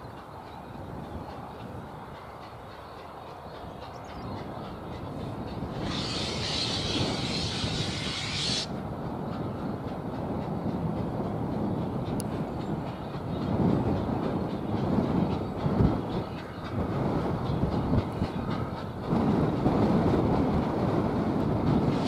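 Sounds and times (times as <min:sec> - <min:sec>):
steam locomotive exhaust beats: 0:00.0 - 0:22.0
train running rumble: 0:00.0 - 0:22.0
steam hissing: 0:05.6 - 0:08.7, 0:21.7 - 0:22.0.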